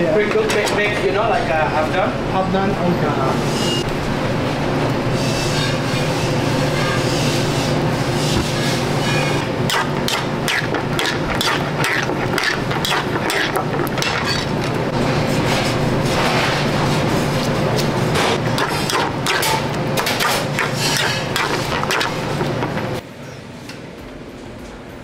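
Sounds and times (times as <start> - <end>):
kitchen equipment rumble: 3.0 - 23.0.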